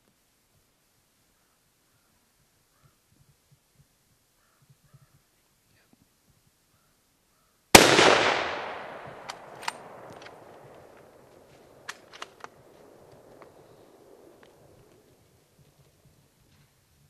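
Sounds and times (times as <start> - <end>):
rifle shot with rolling echo: 7.7 - 15.2.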